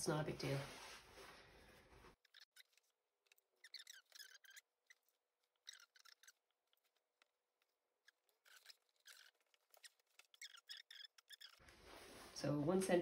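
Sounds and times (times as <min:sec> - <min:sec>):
canvas fabric rustling: 0:00.3 - 0:02.2, 0:11.6 - 0:12.8.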